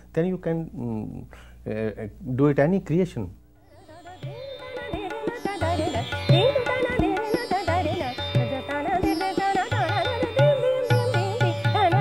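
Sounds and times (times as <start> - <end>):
tanpura drone: 3.6 - 12.0
tabla strokes: 3.7 - 12.0.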